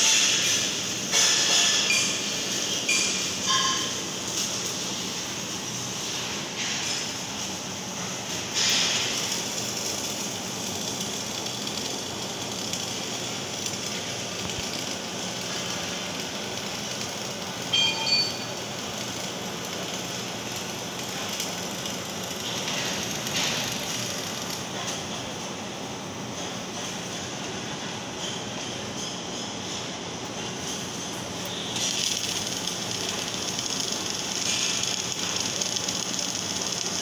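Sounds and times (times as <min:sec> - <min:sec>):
welding arc crackling hiss: 0:00.0 - 0:37.0
short metallic ringing: 0:17.7 - 0:18.5.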